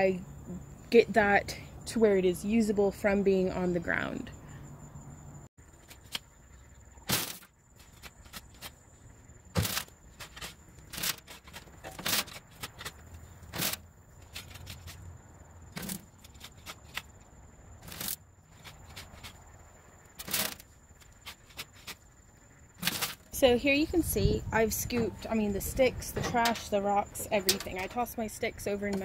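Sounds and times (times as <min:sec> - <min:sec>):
shovel scraping compost: 0:07.0 - 0:08.8, 0:09.5 - 0:15.1, 0:15.7 - 0:17.2, 0:17.8 - 0:19.5, 0:20.1 - 0:22.0, 0:22.8 - 0:23.5.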